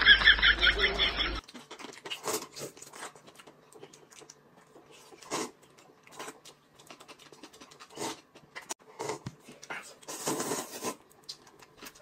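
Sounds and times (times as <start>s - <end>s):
people slurping noodles: 8.9s - 11.0s.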